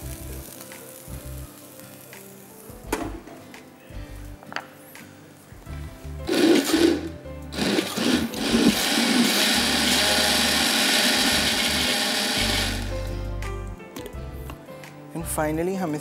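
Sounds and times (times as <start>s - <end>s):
background music: 0.0s - 16.0s
electric blender running: 6.3s - 13.0s.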